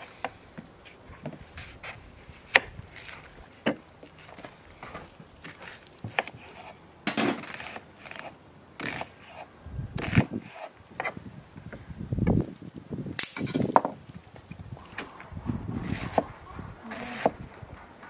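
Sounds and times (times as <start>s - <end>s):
crunchy onion cutting: 0.1s - 11.2s, 15.7s - 17.6s.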